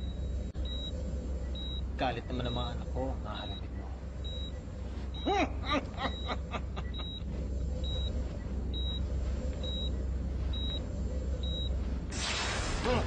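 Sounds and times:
heart monitor beeping: 0.0s - 12.1s
low steady hum: 0.0s - 13.0s
man laughing: 5.2s - 7.4s.

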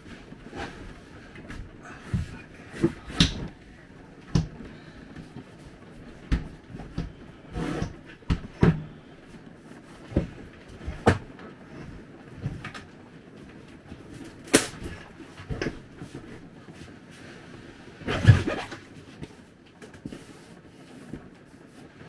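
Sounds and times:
knocks and thumps of objects: 1.4s - 9.1s, 10.0s - 11.4s.

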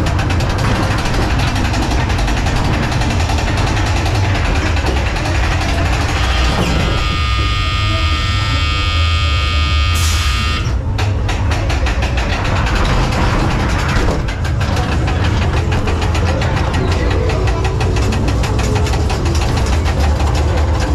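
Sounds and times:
fast clicking: 0.0s - 9.0s, 9.9s - 20.9s
ride car rumbling on track: 0.0s - 20.9s
held tone: 6.1s - 10.8s.

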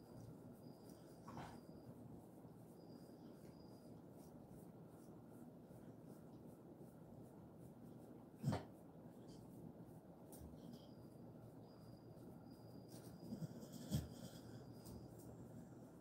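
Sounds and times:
hands rubbing dog fur: 0.0s - 11.2s.

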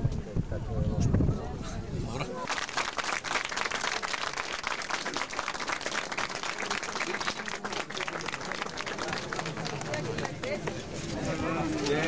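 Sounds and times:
crowd applauding: 2.4s - 10.6s.

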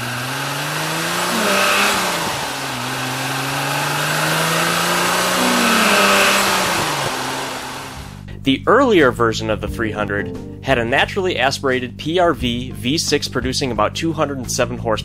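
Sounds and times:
car engine accelerating: 0.0s - 8.4s.

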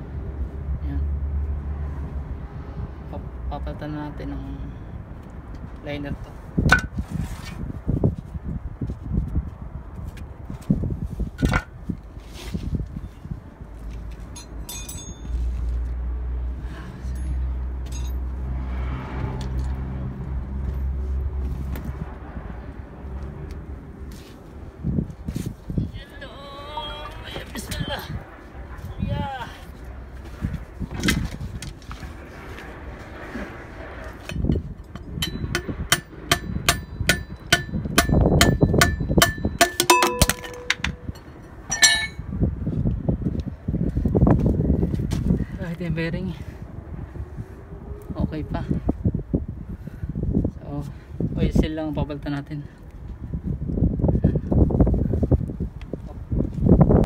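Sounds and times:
metal scraping: 34.2s - 42.3s
hammer striking metal: 35.0s - 42.2s.

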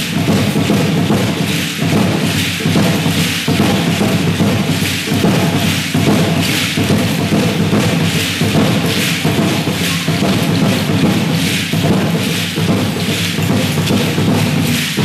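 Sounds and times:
ankle rattles shaking: 0.0s - 15.0s
drum beating a rhythm: 0.0s - 15.0s.

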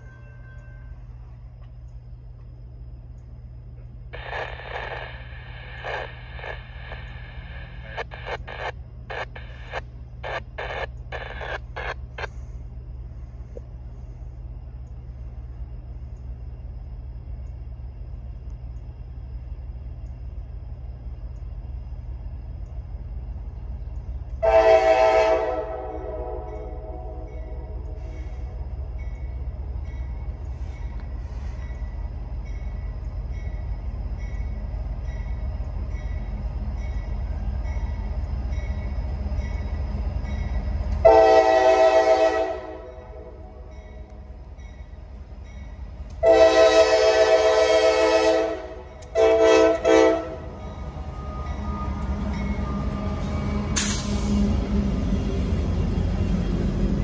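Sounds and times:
diesel locomotive rumble: 0.0s - 57.0s
train air horn blasts: 24.4s - 28.6s, 41.0s - 43.7s, 46.2s - 50.6s.

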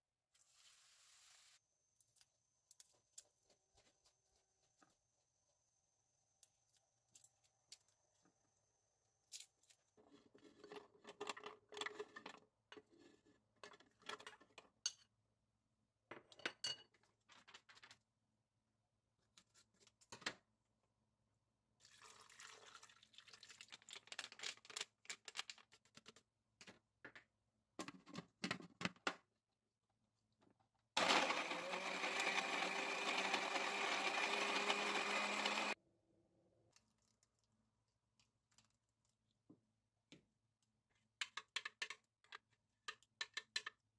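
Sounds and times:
blender motor grinding: 31.0s - 35.8s.

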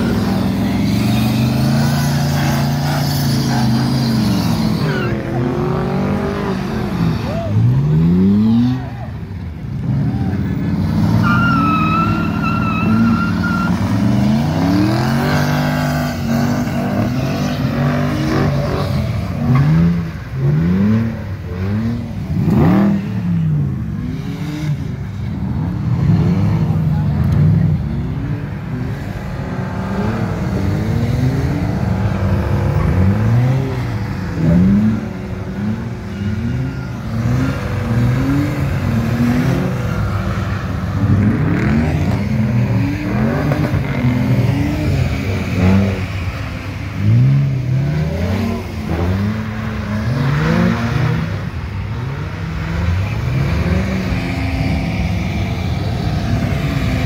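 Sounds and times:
car engines revving hard: 0.0s - 57.0s.

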